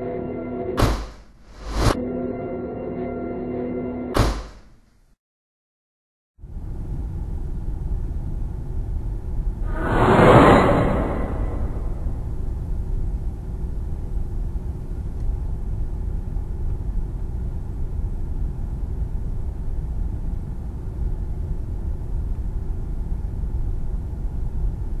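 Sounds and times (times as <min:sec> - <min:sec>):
steady low rumble: 0:06.4 - 0:24.4.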